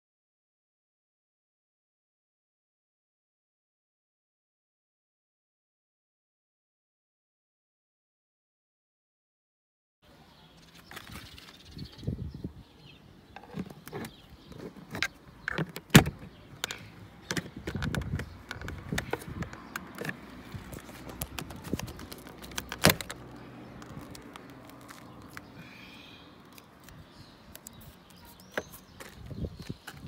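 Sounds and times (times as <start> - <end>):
plastic clicks and knocks: 13.4 - 23.2
plastic cover snapping: 20.8 - 23.2, 23.8 - 25.5.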